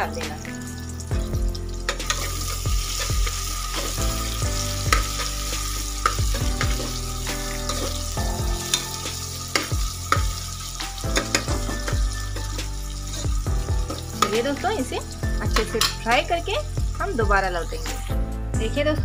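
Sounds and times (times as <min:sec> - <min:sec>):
onions sizzling in oil: 0:00.0 - 0:18.3
metal spoon scraping a pot: 0:01.8 - 0:04.0, 0:04.8 - 0:16.2.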